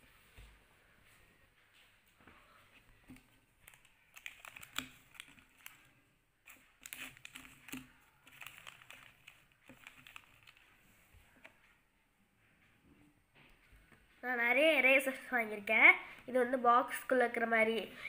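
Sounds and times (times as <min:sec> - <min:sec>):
foil wrappers crinkling: 0:03.6 - 0:10.7.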